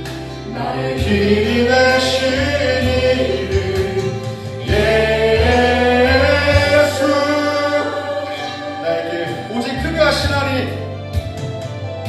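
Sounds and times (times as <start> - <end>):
acoustic guitar: 0.0 - 12.0
people singing into microphones: 0.3 - 9.9.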